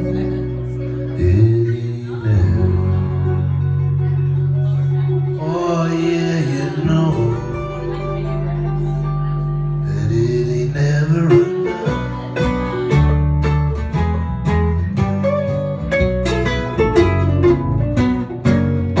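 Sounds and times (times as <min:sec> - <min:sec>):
man singing: 0:00.0 - 0:08.4, 0:09.8 - 0:12.9
acoustic guitars strumming: 0:00.0 - 0:19.0.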